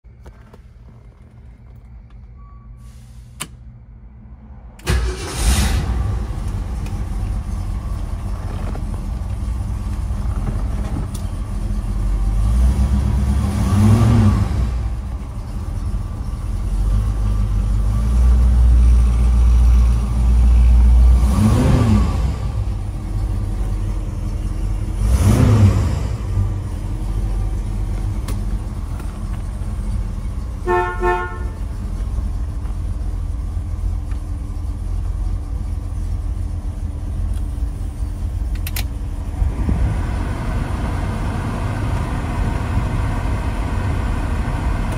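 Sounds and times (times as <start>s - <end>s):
car engine idling and revving: 0.0s - 2.7s, 3.3s - 44.9s
car horn toots: 30.6s - 31.7s.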